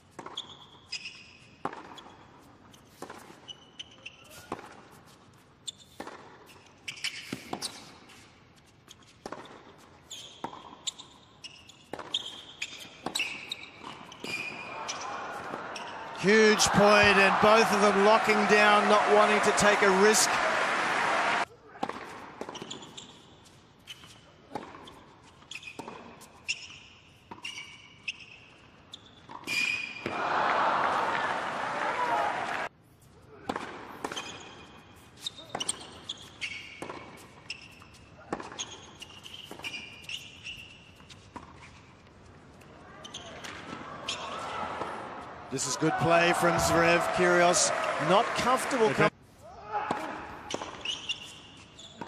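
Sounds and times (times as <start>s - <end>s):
shoes squeaking on court: 0.0s - 20.4s, 21.9s - 30.1s, 33.9s - 44.9s, 50.4s - 52.0s
tennis ball bouncing: 1.6s - 2.0s, 9.2s - 11.1s, 11.8s - 19.8s.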